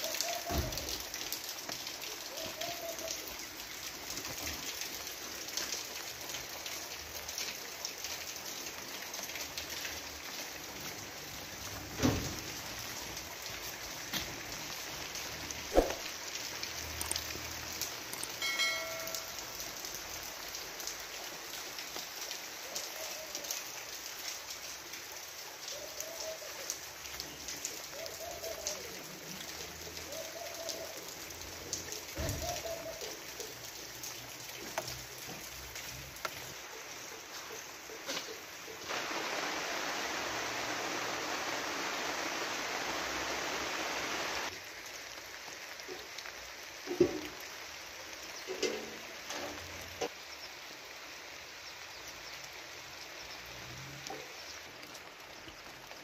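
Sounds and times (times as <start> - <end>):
close raindrops striking: 0.0 - 56.0
steady rain falling: 0.0 - 56.0.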